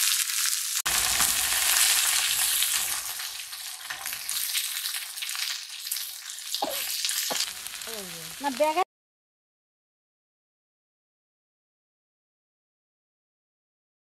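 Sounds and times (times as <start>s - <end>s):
food sizzling in hot oil: 0.0s - 8.9s.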